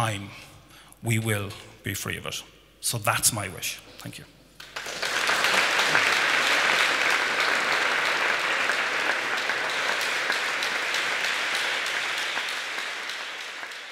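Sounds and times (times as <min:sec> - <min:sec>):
audience applauding: 0:04.6 - 0:13.9.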